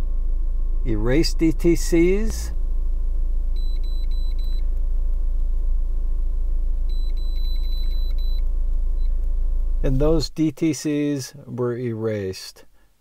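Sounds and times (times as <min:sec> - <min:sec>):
car engine idling: 0:00.0 - 0:10.2
high-pitched electronic chirping: 0:06.9 - 0:08.4.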